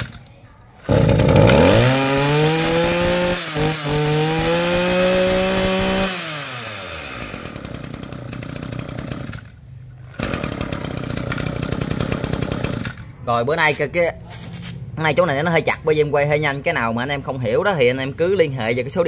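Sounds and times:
brush cutter engine revving: 0:00.8 - 0:09.5, 0:10.1 - 0:13.0.

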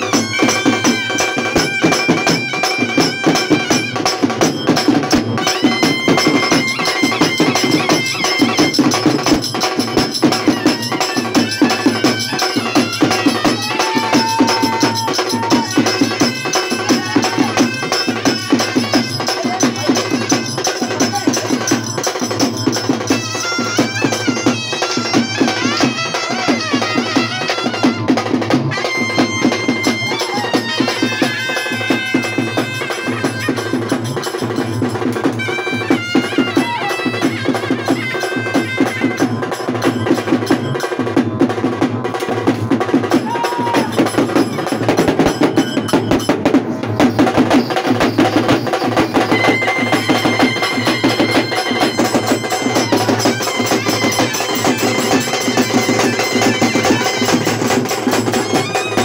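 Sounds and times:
fast steady drumming: 0:00.0 - 0:59.0
reedy wind instrument melody: 0:00.0 - 0:59.0.

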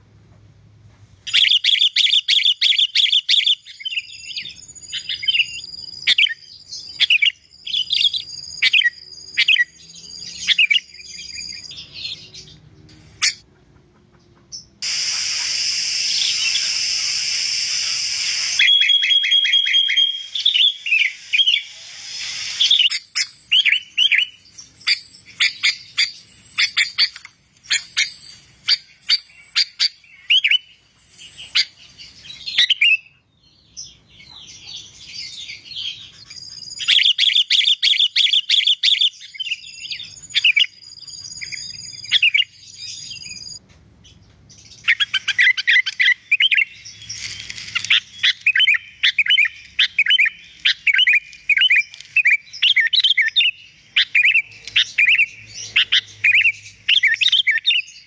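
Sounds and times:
bird trill: 0:01.3 - 0:12.6, 0:16.0 - 0:58.0
bird calls: 0:01.3 - 0:58.0
bird warbling: 0:14.8 - 0:30.6.

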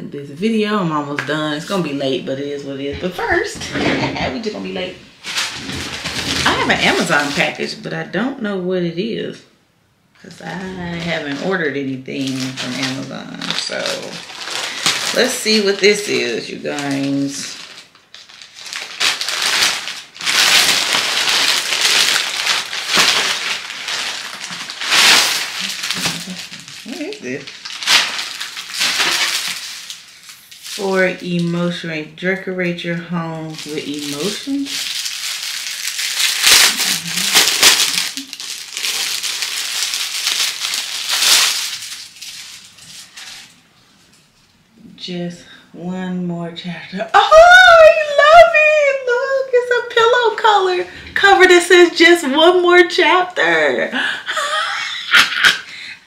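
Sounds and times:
plastic bag tearing and crumpling: 0:04.7 - 0:07.7, 0:10.5 - 0:31.6, 0:33.3 - 0:43.6.

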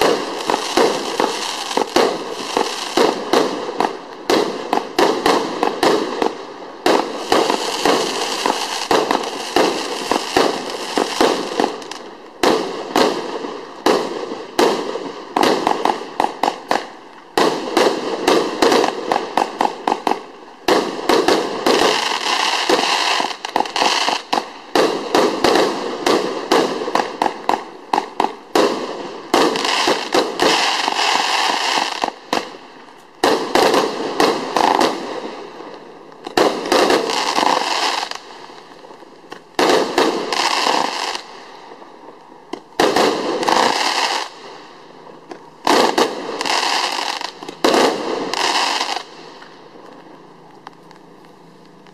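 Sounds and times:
fireworks crackling: 0:00.0 - 0:51.9
fireworks launching and bursting: 0:00.0 - 0:51.9.

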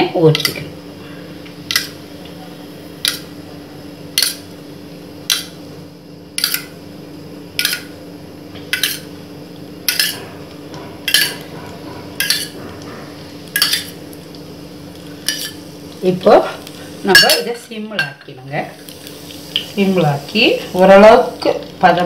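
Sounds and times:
spoon clinking against steel bowl: 0:17.1 - 0:18.2.

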